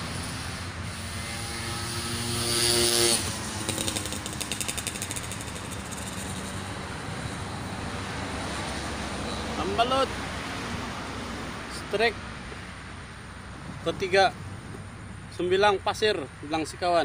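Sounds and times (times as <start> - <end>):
vehicle engine passing: 0.0 - 12.4
fishing reel clicking: 3.6 - 6.6.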